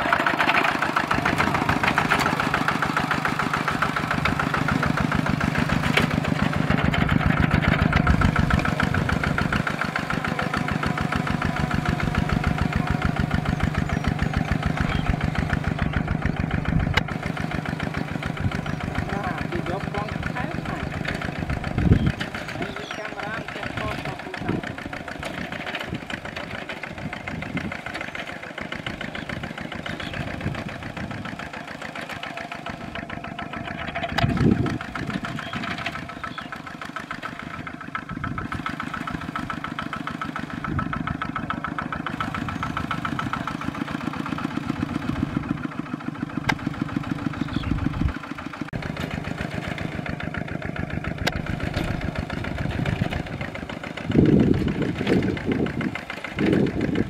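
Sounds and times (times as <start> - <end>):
diesel engine chugging: 0.0 - 57.0.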